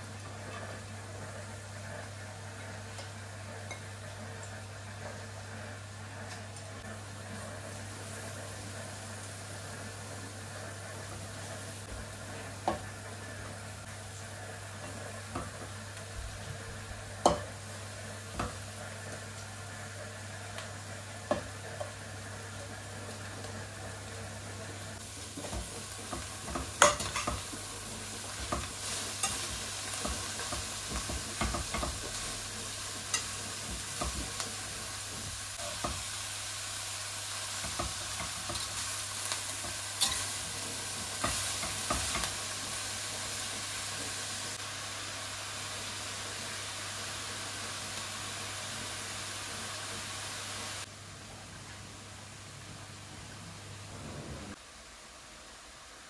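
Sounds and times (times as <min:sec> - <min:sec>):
food sizzling in a pan: 0:00.0 - 0:51.0.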